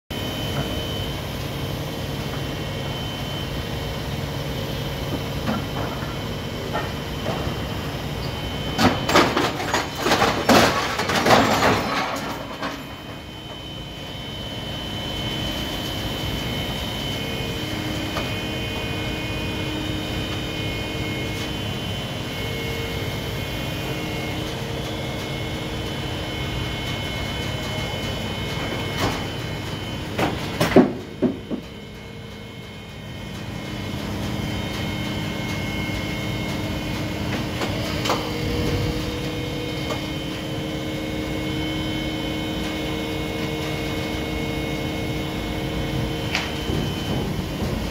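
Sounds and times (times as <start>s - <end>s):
crane engine and hydraulics drone: 0.1s - 47.9s.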